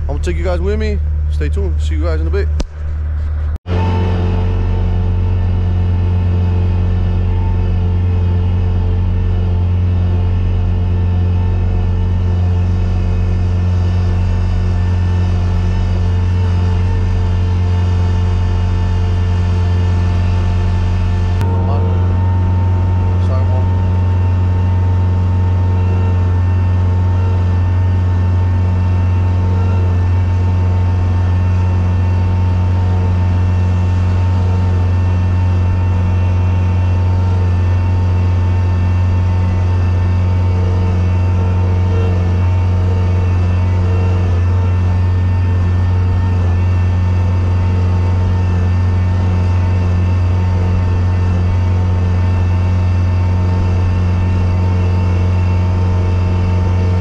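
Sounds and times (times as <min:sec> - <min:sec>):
engine humming steadily: 0:00.0 - 0:57.0.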